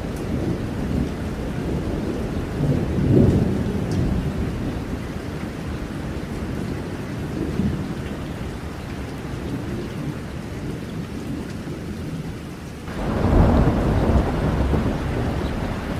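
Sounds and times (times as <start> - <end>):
thunder rumbling: 0.0 - 8.7, 12.9 - 15.9
steady rain: 0.0 - 15.9.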